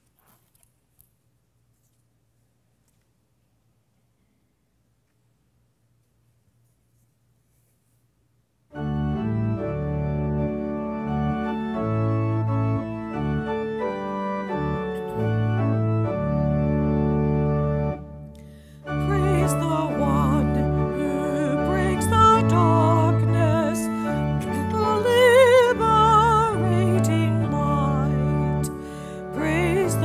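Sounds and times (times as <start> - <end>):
organ playing hymn chords: 8.7 - 30.0
woman singing with vibrato: 18.9 - 30.0.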